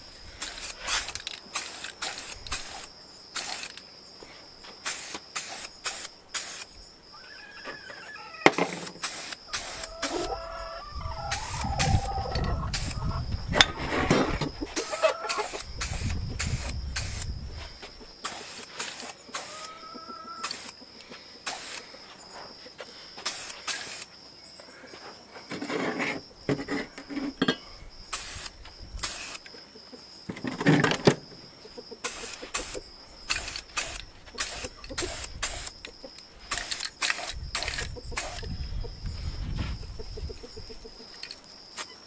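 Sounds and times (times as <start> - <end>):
spray paint can hissing: 0.4 - 3.8, 4.8 - 6.7, 8.6 - 10.3, 12.7 - 13.0, 14.8 - 17.3, 18.2 - 19.7, 20.4 - 20.8, 21.4 - 21.8, 23.2 - 24.1, 28.1 - 29.4, 32.0 - 35.8, 36.5 - 38.5.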